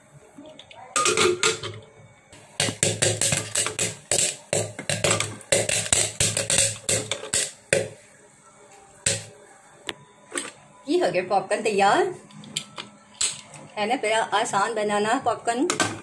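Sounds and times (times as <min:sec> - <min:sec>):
corn kernels popping in a pot: 0:02.4 - 0:08.0, 0:09.0 - 0:09.3.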